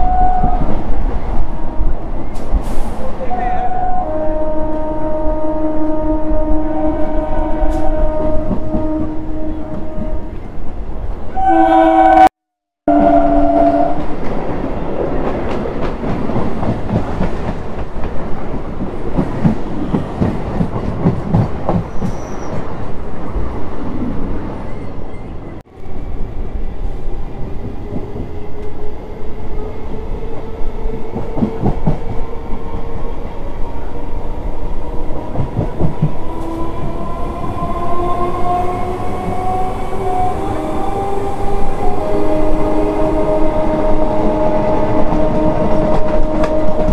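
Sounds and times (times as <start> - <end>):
train horn blasts: 0.0 - 2.0, 3.2 - 10.4, 11.3 - 12.3, 12.9 - 14.1, 38.0 - 46.9
train rumble: 0.0 - 11.5, 12.9 - 46.9.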